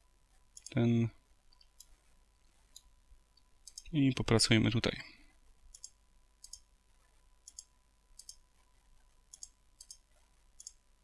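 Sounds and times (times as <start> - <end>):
mouse buttons clicking: 3.6 - 3.9, 7.5 - 8.4, 9.3 - 10.0.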